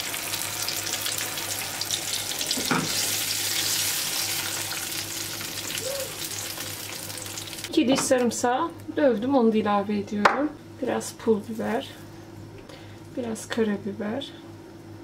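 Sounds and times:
food sizzling in oil: 0:00.0 - 0:07.7
steady low hum: 0:01.2 - 0:15.0.

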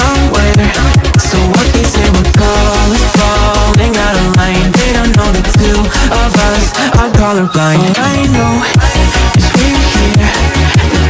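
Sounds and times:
pitch-dropping bass hit: 0:00.0 - 0:09.7
electronic music with heavy bass: 0:00.0 - 0:11.0.

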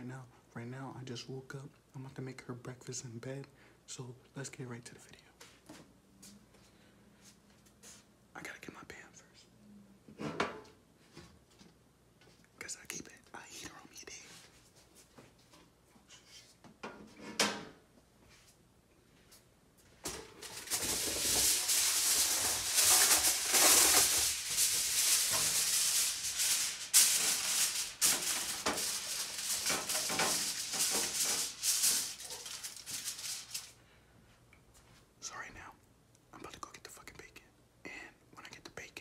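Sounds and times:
aluminium foil crinkling: 0:20.0 - 0:33.8.

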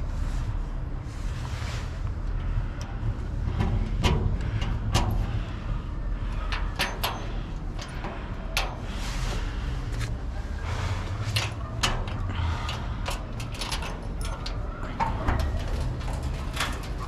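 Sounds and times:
steady low rumble: 0:00.0 - 0:17.0
clicks and scrapes at door latch: 0:10.8 - 0:17.0.

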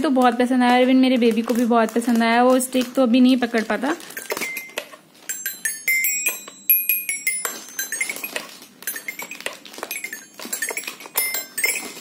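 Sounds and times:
toy xylophone notes: 0:04.2 - 0:12.0.

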